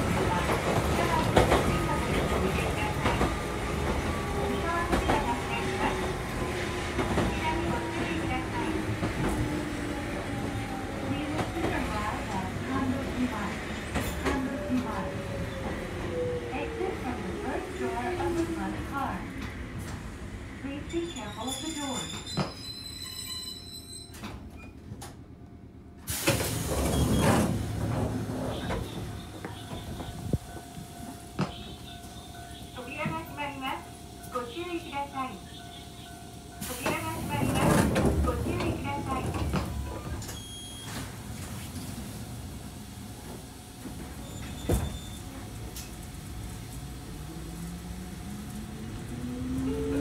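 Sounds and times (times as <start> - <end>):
train car running noise: 0.0 - 50.0
train doors opening with air hiss: 21.0 - 25.0, 26.0 - 31.8, 36.6 - 46.1.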